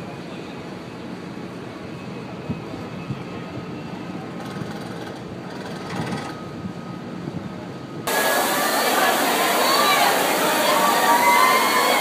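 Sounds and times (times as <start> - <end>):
loud rushing noise: 8.0 - 12.0.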